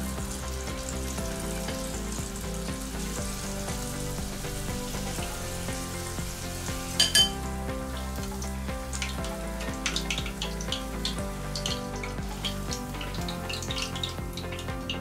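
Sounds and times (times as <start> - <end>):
background music: 0.0 - 15.0
tempura crackling in hot oil: 0.0 - 15.0
sharp clink: 7.0 - 7.4.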